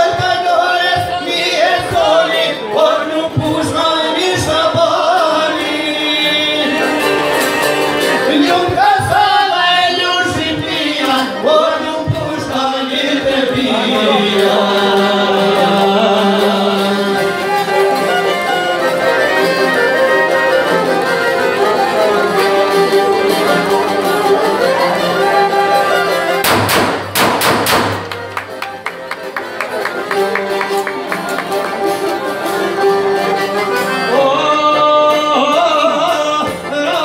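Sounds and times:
man singing: 0:00.0 - 0:17.9, 0:34.0 - 0:37.0
violin melody: 0:00.0 - 0:26.6, 0:27.7 - 0:37.0
plucked lute: 0:00.0 - 0:37.0
sharp strikes: 0:26.4 - 0:28.2.

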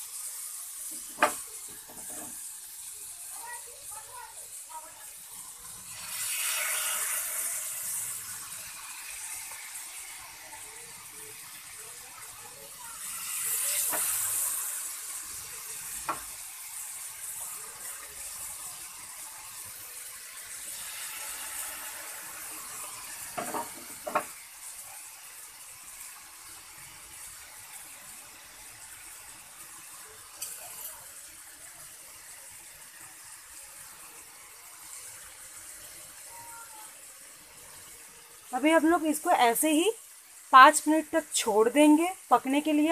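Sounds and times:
chicken sizzling in oil: 0:00.0 - 0:42.9
tongs clicking on griddle: 0:13.8 - 0:14.2, 0:30.4 - 0:31.0.

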